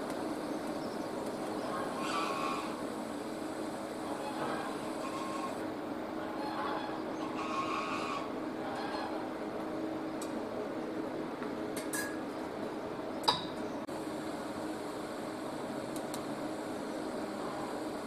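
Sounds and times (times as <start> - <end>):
welding machine hum and hiss: 0.0 - 5.8, 13.8 - 18.0.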